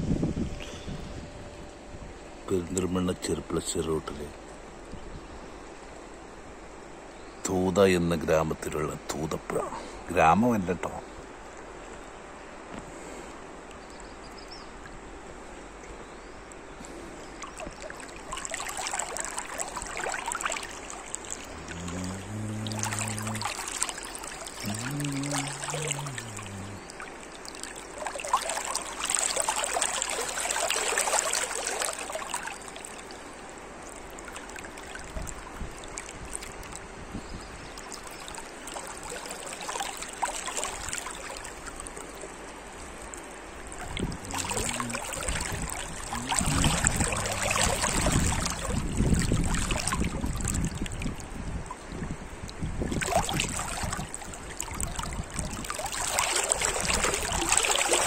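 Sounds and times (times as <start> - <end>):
river rippling and splashing: 1.6 - 58.0
long low calls: 18.1 - 34.5, 43.8 - 50.2.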